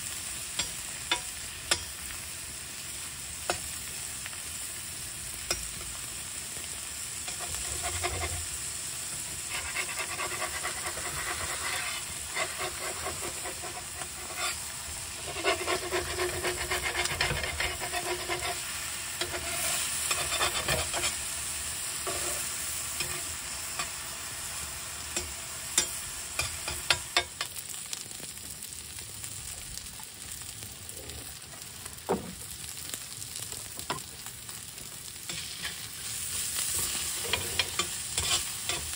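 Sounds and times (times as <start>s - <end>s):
patties and onions sizzling: 0.0s - 38.9s
metal spatula scraping pan: 7.3s - 8.6s, 9.4s - 21.2s, 22.0s - 24.0s, 35.3s - 38.9s
spatula clacks: 36.8s - 38.9s.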